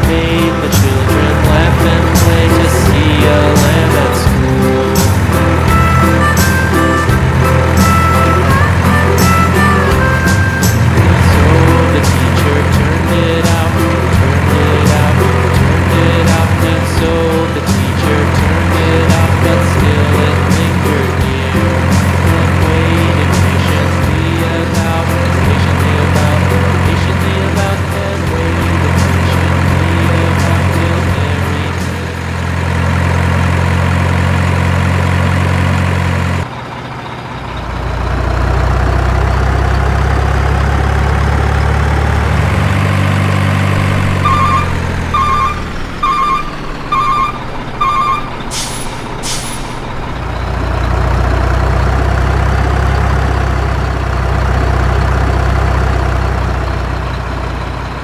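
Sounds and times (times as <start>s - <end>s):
diesel truck engine running: 0.0s - 58.0s
reversing beeps: 44.2s - 49.8s
air brake hisses: 48.4s - 50.0s.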